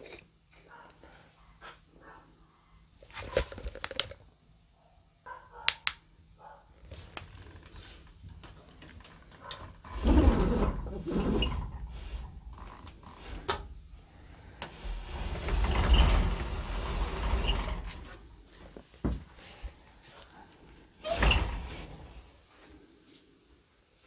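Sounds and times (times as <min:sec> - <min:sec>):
wooden door scraping open: 0:07.0 - 0:19.3, 0:21.0 - 0:22.3.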